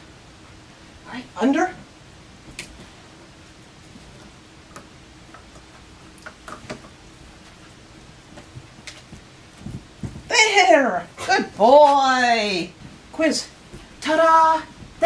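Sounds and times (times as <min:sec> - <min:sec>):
low room hum: 0:00.0 - 0:15.0
faint clicks and light taps: 0:04.1 - 0:07.7.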